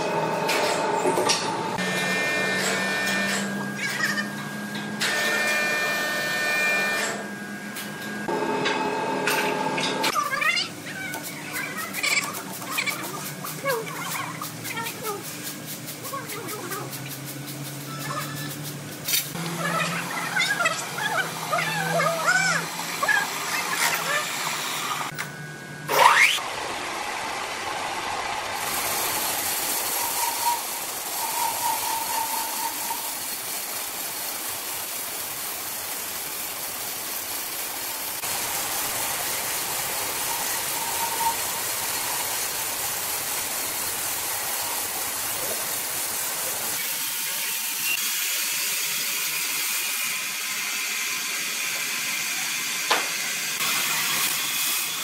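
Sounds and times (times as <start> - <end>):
band saw cutting log: 0.0 - 4.4, 5.0 - 7.4, 46.8 - 55.0
machinery running: 0.0 - 34.8
saw squealing: 25.9 - 26.4, 29.8 - 33.3, 40.2 - 42.2.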